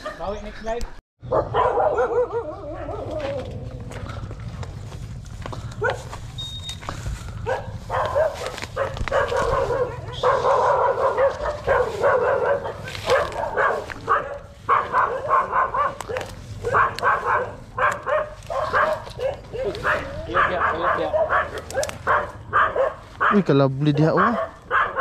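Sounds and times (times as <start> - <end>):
dog barking and yipping: 0.0 - 0.4, 1.3 - 3.4, 5.8 - 6.1, 7.4 - 25.0.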